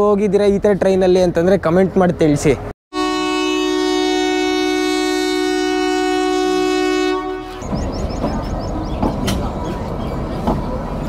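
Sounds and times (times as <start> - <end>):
low rumble of standing train: 0.4 - 11.0
train horn blast: 2.9 - 7.8.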